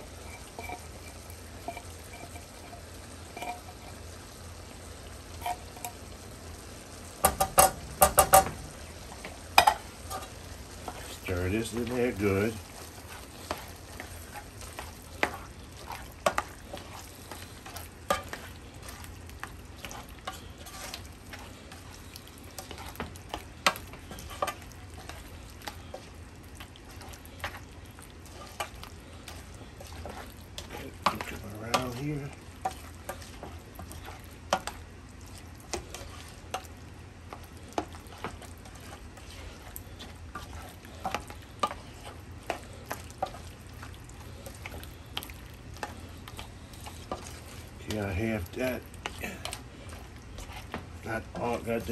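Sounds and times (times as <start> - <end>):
spoon scraping a pot: 0.0 - 4.0, 5.4 - 6.0, 9.6 - 19.1, 19.8 - 21.9, 22.5 - 26.1, 26.8 - 34.7, 35.7 - 36.7
food sizzling: 0.0 - 51.9.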